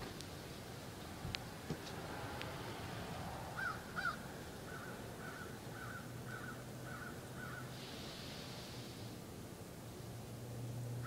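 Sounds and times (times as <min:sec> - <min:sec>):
bird calling: 0:03.6 - 0:07.8.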